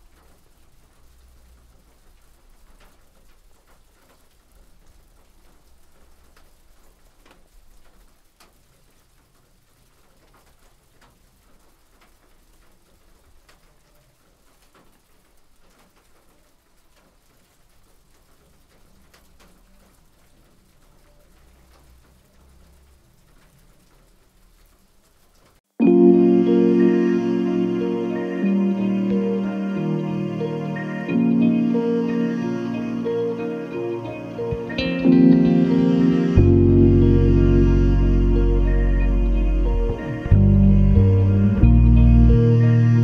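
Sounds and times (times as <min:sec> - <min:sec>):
low steady hum: 0:26.0 - 0:43.0.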